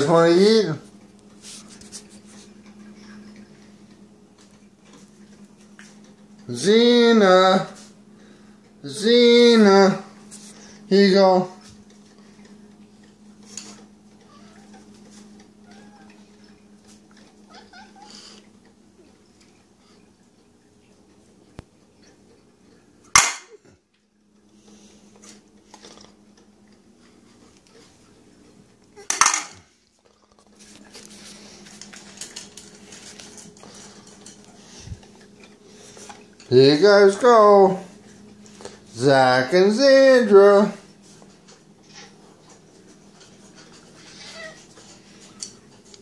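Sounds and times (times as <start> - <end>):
steady low hum: 0.0 - 46.0
cats meowing faintly: 14.2 - 16.5, 17.3 - 18.5
cats crunching dry kibble: 29.7 - 36.5.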